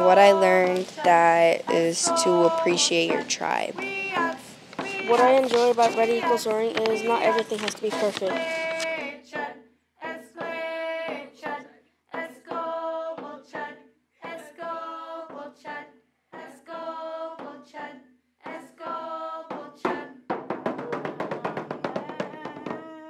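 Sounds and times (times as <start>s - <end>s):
voices singing held notes: 0.0s - 23.0s.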